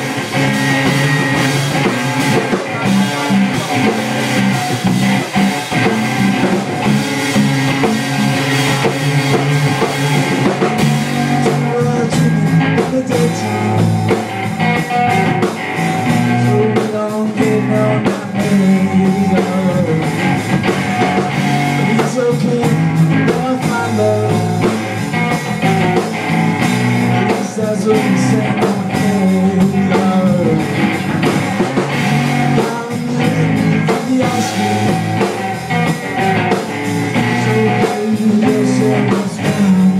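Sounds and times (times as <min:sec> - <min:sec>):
drum kit: 0:00.0 - 0:39.9
electric bass: 0:00.0 - 0:39.9
electric guitar: 0:00.0 - 0:39.9
man singing: 0:00.8 - 0:07.0, 0:10.5 - 0:14.2, 0:16.0 - 0:20.4, 0:21.8 - 0:26.1, 0:27.1 - 0:31.4, 0:32.3 - 0:39.9.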